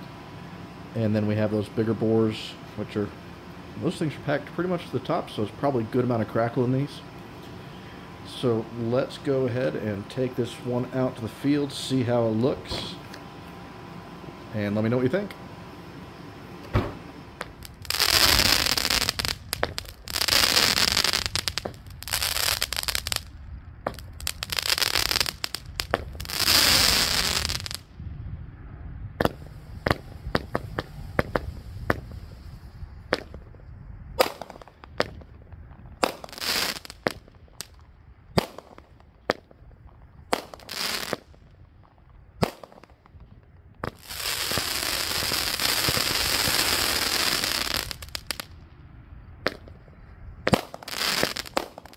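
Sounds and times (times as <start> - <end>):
firework sharp pops: 16.7 - 27.8, 29.2 - 32.4, 33.1 - 33.6, 34.2 - 48.5, 49.4 - 49.8, 50.4 - 51.9
firework crackling: 17.1 - 27.9, 29.2 - 33.6, 34.2 - 41.8, 42.4 - 48.6, 50.4 - 51.9.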